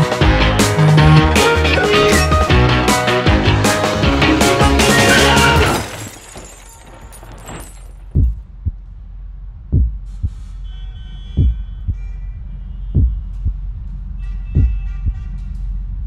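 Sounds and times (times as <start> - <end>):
heartbeat thumps: 8.2 - 10.6, 11.3 - 15.3.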